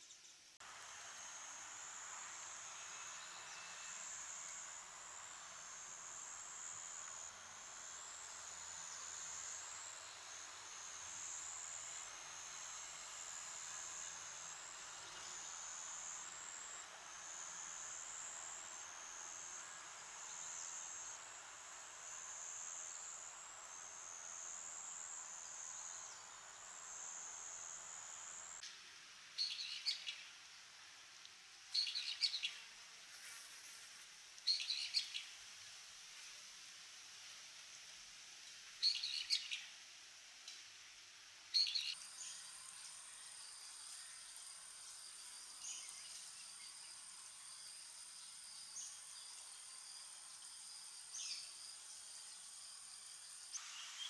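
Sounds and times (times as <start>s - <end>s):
insects trilling: 0.0s - 28.6s, 38.8s - 39.8s, 41.5s - 54.0s
soft outdoor hiss: 0.0s - 54.0s.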